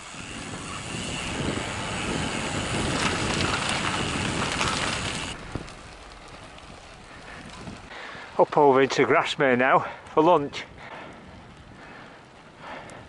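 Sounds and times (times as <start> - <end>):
wind on microphone: 0.0 - 8.0
bicycle tyres on wet gravel: 0.0 - 13.0.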